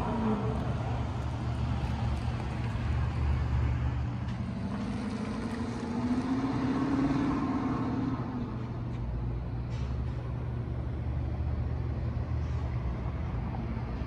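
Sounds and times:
car engine accelerating: 1.8s - 8.9s.

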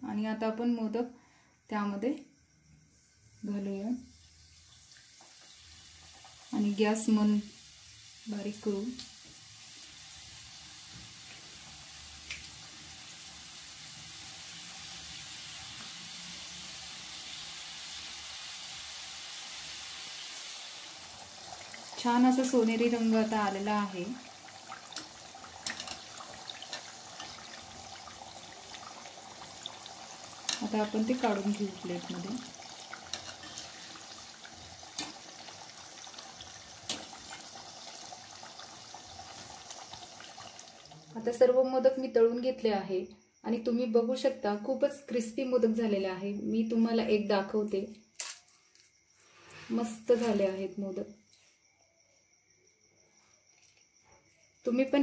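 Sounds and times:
oil sizzling while deep-frying: 3.3s - 41.5s, 49.7s - 50.6s.

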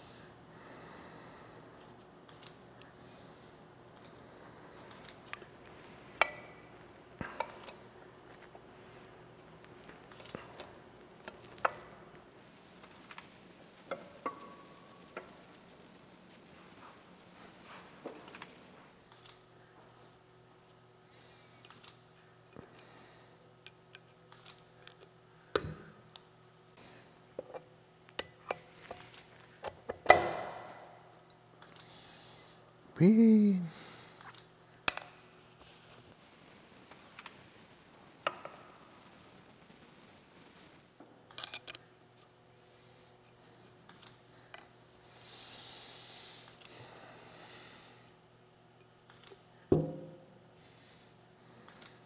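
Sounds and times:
metal parts clinking: 41.3s - 41.8s.

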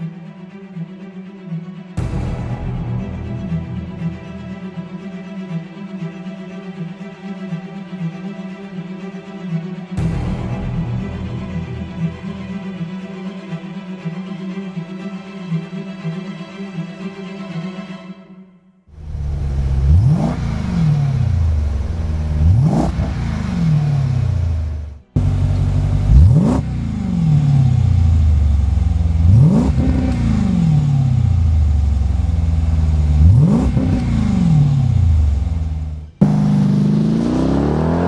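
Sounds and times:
car engine idling and revving: 19.0s - 38.0s.

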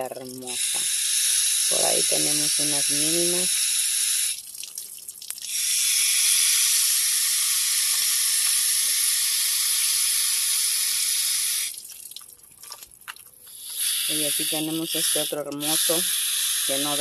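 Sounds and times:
hose spray nozzle hissing: 0.0s - 4.5s, 5.5s - 11.8s, 13.5s - 17.0s.

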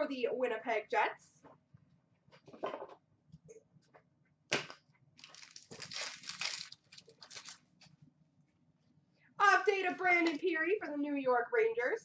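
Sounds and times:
packaging crinkling: 5.2s - 7.7s.

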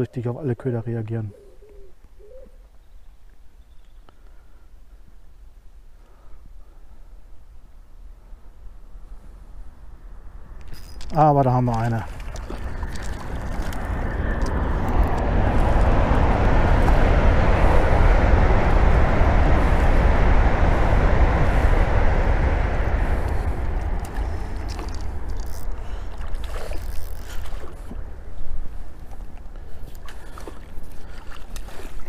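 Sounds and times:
wind rumbling on microphone: 7.5s - 32.0s.

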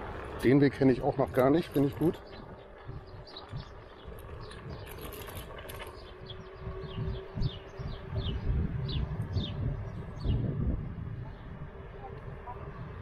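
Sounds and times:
electric scooter rumble: 0.0s - 13.0s
steady hum: 0.0s - 13.0s
bird chirping: 1.8s - 10.5s.

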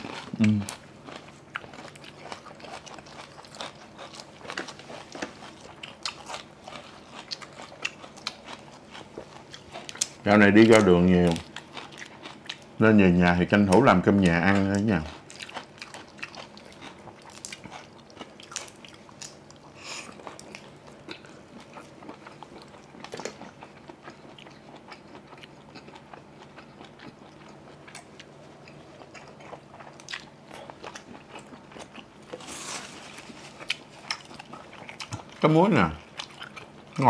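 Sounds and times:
crunching and wet chewing: 0.0s - 37.0s
rustling: 32.3s - 34.0s.

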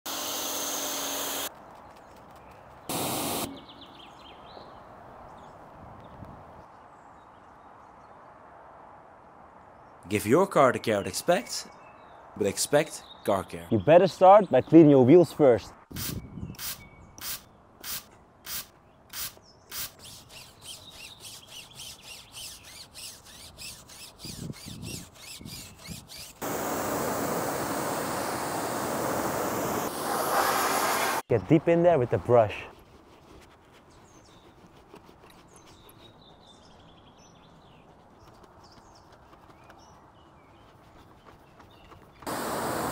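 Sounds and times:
pressure washer spraying: 2.9s - 3.6s, 26.4s - 31.2s, 42.3s - 42.9s
spray bottle squirts: 16.0s - 20.2s.

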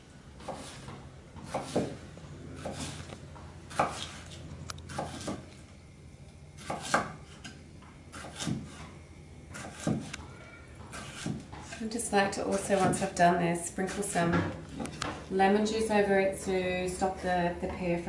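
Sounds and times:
knife slicing a pear: 0.4s - 2.0s, 2.6s - 3.1s, 3.7s - 5.5s, 6.6s - 8.9s, 9.5s - 10.2s, 10.9s - 11.9s.

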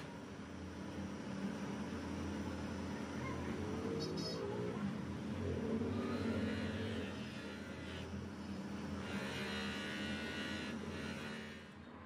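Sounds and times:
bench grinder humming: 5.9s - 11.8s.

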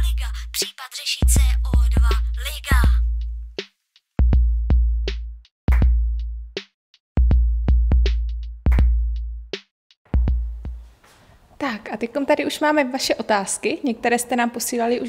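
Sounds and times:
deep bass drum hits: 10.2s - 10.8s.

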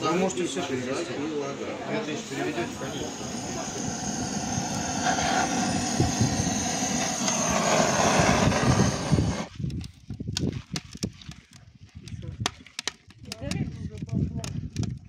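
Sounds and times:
blowtorch roaring: 1.8s - 9.5s
kindling crackling: 2.0s - 9.8s.

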